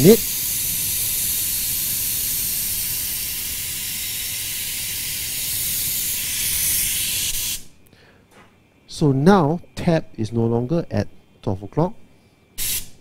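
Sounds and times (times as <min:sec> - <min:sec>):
steam hissing from steam wand: 0:00.0 - 0:07.7, 0:12.6 - 0:13.0.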